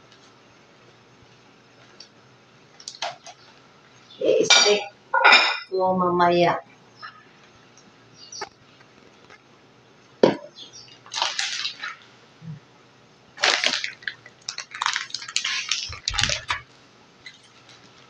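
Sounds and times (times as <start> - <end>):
plastic bag crinkling: 11.0 - 12.0, 13.4 - 18.0.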